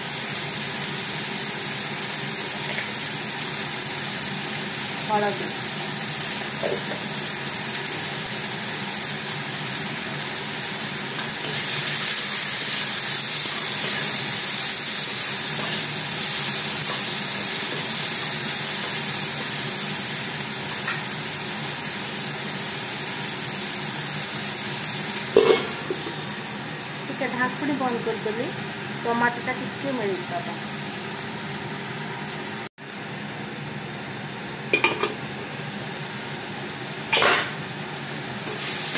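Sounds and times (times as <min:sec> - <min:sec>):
vegetables sizzling in oil: 0:00.0 - 0:38.9
metal lid clanking on wok: 0:25.3 - 0:26.2, 0:34.7 - 0:35.2, 0:37.1 - 0:37.6.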